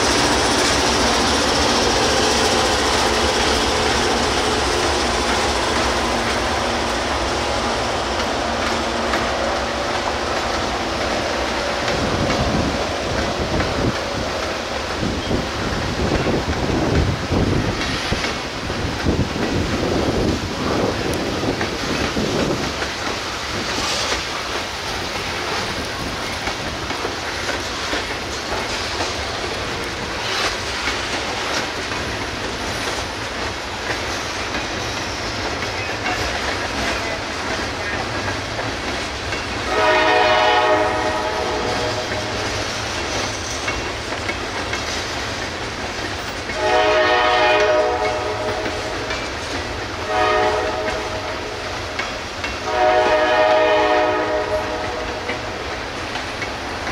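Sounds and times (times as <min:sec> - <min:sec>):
freight train rumbling past: 0:00.0 - 0:56.9
locomotive horn blasts: 0:39.7 - 0:42.3, 0:46.6 - 0:48.9, 0:50.0 - 0:51.6, 0:52.7 - 0:55.3.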